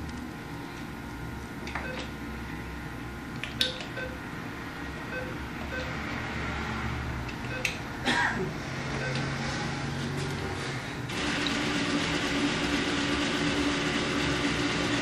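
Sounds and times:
keypad beeps: 1.7 - 2.1, 3.6 - 4.2, 5.1 - 5.9, 7.4 - 7.8, 9.0 - 9.3.

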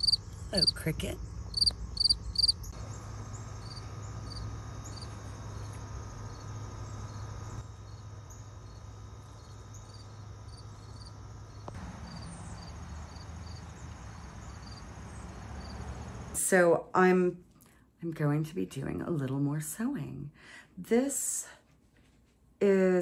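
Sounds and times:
cricket chirping: 0.0 - 16.3.

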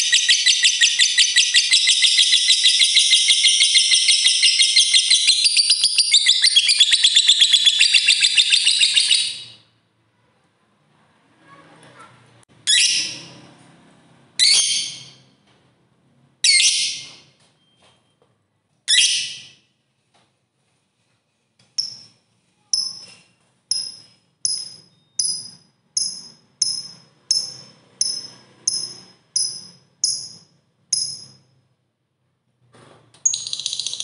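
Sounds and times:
bird chirping: 0.0 - 9.7, 12.6 - 13.5, 14.4 - 15.4, 21.8 - 31.6, 33.2 - 34.0.

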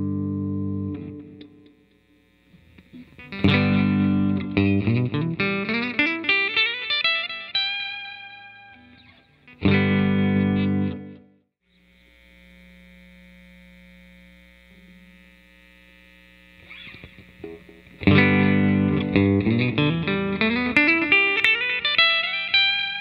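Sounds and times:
electric guitar: 0.0 - 11.4, 16.4 - 23.0.

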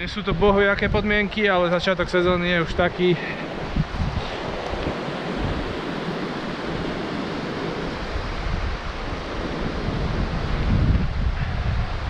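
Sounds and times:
wind buffeting microphone: 0.0 - 12.0
stream rushing over rocks: 1.6 - 10.8.

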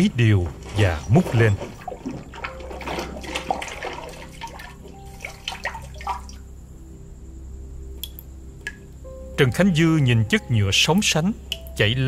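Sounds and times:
liquid dripping: 0.0 - 6.4, 8.0 - 9.0, 10.9 - 11.9
liquid sloshing in a jar: 0.0 - 6.4.

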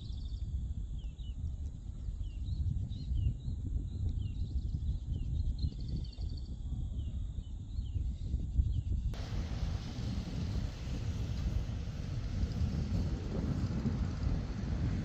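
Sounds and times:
low wind rumble: 0.0 - 15.0
birds chirping: 9.2 - 15.0.

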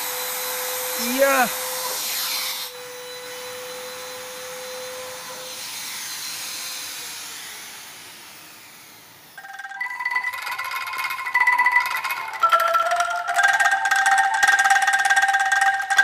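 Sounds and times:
electric router motor whine: 0.0 - 9.3
music: 9.4 - 16.0.

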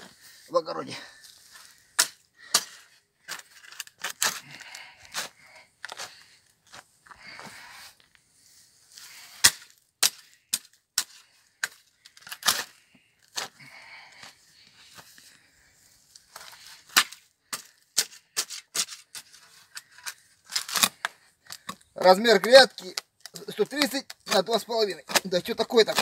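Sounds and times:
spade digging into soil: 1.6 - 6.2, 9.0 - 13.6, 16.3 - 21.8, 23.6 - 26.0.

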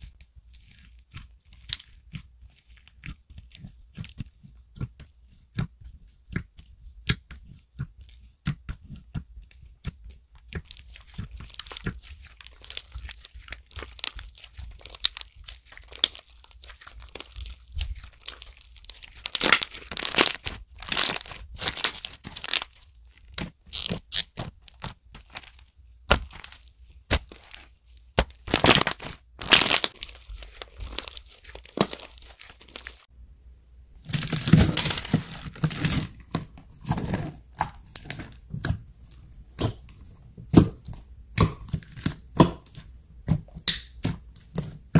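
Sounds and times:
slime crackling when stretched: 10.6 - 33.1.

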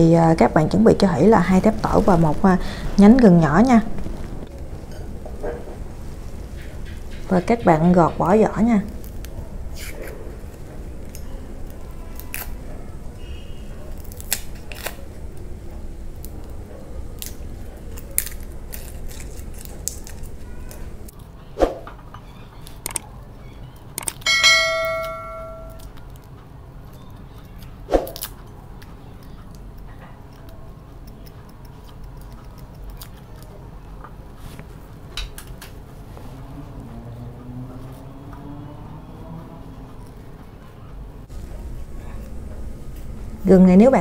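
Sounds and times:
bell-like chime: 24.3 - 25.8.

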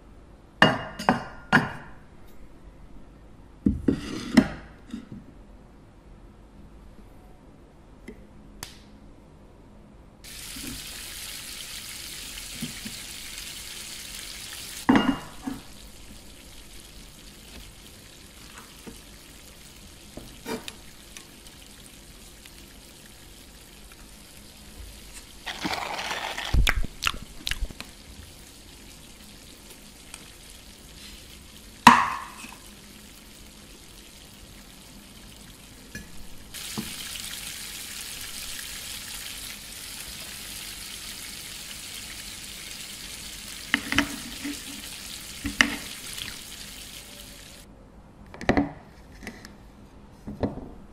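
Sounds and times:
food sizzling in pan: 10.3 - 47.7
dishes taps and clicks: 31.8 - 32.6, 43.7 - 44.6, 45.4 - 45.9.

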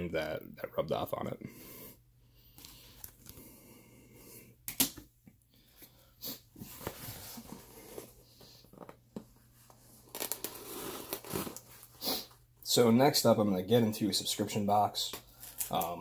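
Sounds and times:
breathing close to microphone: 1.4 - 4.6.

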